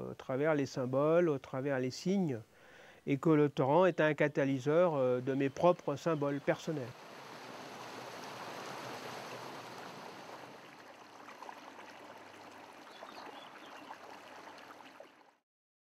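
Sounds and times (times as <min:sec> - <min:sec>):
water rushing over boulders: 0:05.2 - 0:15.4.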